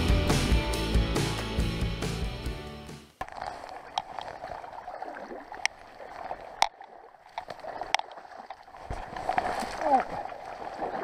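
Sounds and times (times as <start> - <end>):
water sloshing around legs: 3.2 - 11.0.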